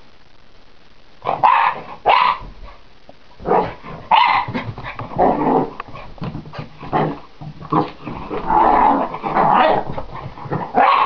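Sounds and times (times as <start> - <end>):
puppy barking: 1.2 - 2.5, 4.1 - 4.6, 10.7 - 11.0.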